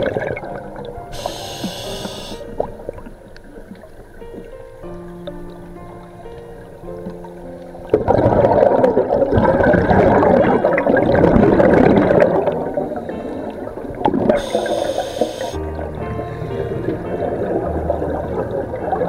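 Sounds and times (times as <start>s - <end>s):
brief high tone: 1.2s - 2.4s
air bubbling underwater: 7.9s - 12.9s.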